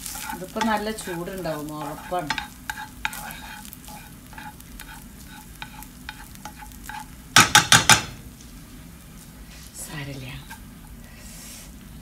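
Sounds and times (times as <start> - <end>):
tongs scraping frying pan: 0.0 - 8.2
faint sizzle: 0.0 - 12.0.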